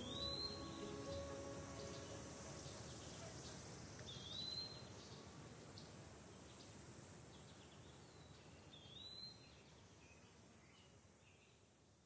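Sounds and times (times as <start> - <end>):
bird whistled note: 0.0 - 2.7
faint outdoor ambience: 0.0 - 12.0.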